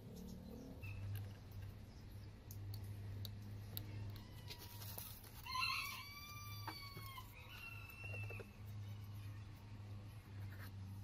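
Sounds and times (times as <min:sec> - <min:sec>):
rooster crowing: 0:04.0 - 0:08.6.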